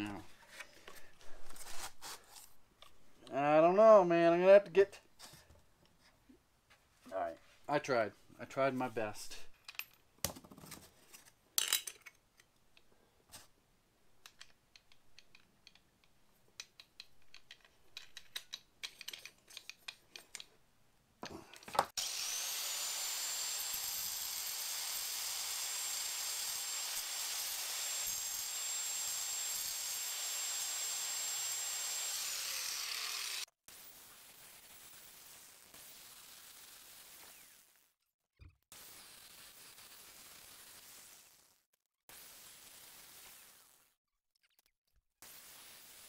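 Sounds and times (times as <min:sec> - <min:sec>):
clicks and knocks of handling: 0:14.2 - 0:20.6
angle grinder whining: 0:22.0 - 0:33.5.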